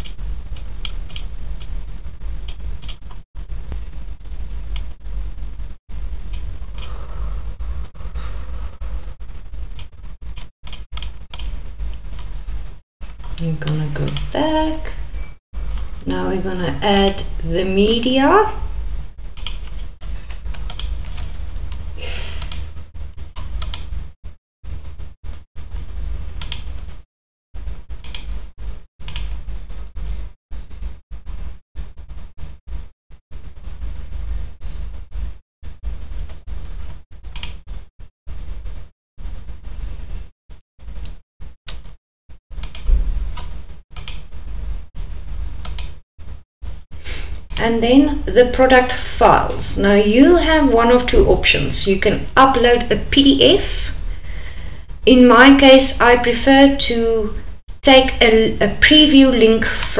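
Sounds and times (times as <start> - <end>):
computer mouse clicks: 0.0 - 1.7, 9.7 - 12.3, 19.4 - 21.3, 22.4 - 22.7, 23.4 - 23.9, 26.4 - 26.7, 28.0 - 28.3, 29.0 - 29.3, 37.3 - 37.6, 42.6 - 44.2, 45.6 - 46.0
steady low microphone hum: 3.4 - 10.4, 11.1 - 23.3, 46.2 - 59.9.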